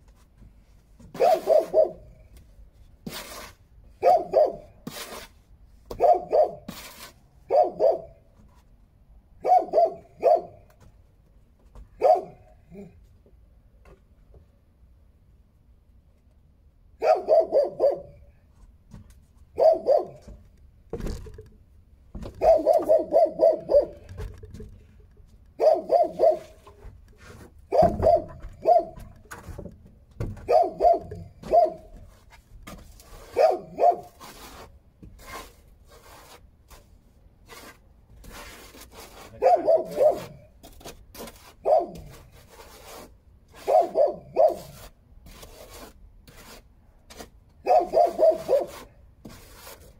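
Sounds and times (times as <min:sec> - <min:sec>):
dog barking: 0:01.2 - 0:02.2, 0:04.0 - 0:04.7, 0:06.0 - 0:06.7, 0:07.5 - 0:08.2, 0:09.4 - 0:10.6, 0:12.0 - 0:12.9, 0:17.0 - 0:18.2, 0:19.6 - 0:20.3, 0:22.4 - 0:24.1, 0:25.6 - 0:26.6, 0:27.7 - 0:29.0, 0:30.4 - 0:31.9, 0:33.3 - 0:34.2, 0:39.4 - 0:40.5, 0:41.6 - 0:42.2, 0:43.6 - 0:44.8, 0:47.6 - 0:48.8.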